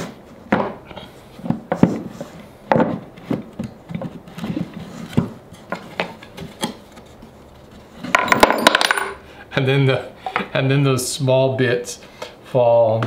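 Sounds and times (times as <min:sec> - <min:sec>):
wooden knocks and rubbing: 0:00.0 - 0:09.1.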